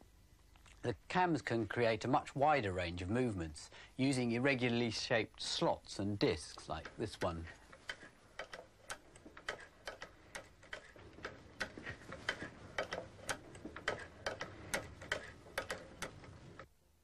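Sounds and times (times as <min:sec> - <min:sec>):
sewing machine clicking: 0:06.4 - 0:16.7.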